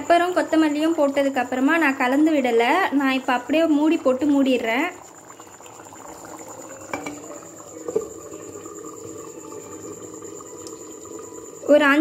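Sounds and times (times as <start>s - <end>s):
curry bubbling in a pot: 0.0s - 12.0s
clay lid knocks: 6.9s - 7.2s.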